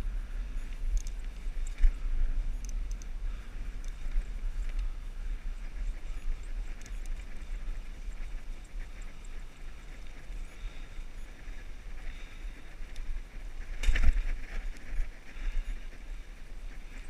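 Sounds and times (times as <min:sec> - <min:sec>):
wind buffeting microphone: 0:00.0 - 0:17.0
bike clatter: 0:13.7 - 0:14.6.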